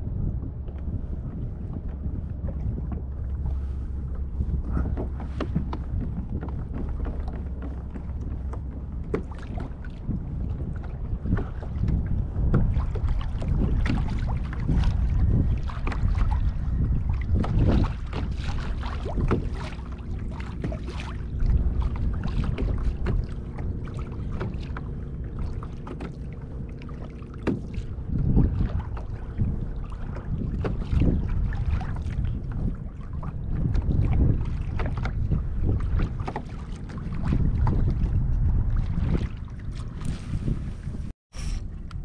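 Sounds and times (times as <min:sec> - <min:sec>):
water lapping against kayak hull: 0:00.0 - 0:42.0
wind rumble on microphone: 0:00.0 - 0:42.0.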